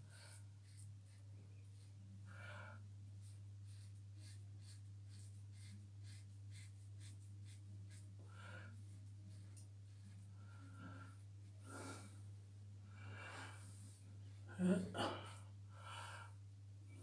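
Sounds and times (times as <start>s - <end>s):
steady low hum: 0.0s - 17.0s
breath: 12.9s - 14.0s, 15.2s - 16.4s.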